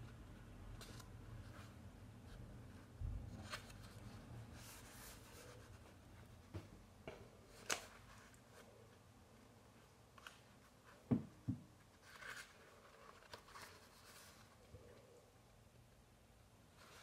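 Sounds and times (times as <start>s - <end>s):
book pages turning: 2.7s - 5.9s, 7.5s - 8.8s, 11.9s - 14.6s.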